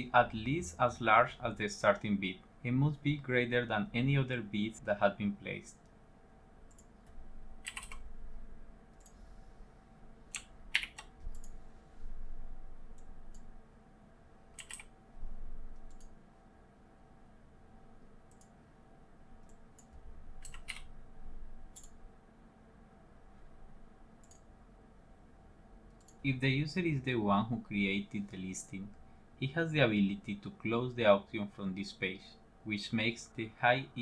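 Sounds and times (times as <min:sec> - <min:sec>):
faint steady hum: 0:00.0 - 0:34.0
keyboard keystrokes: 0:07.6 - 0:08.0, 0:10.3 - 0:11.6, 0:14.6 - 0:14.9, 0:19.4 - 0:20.9.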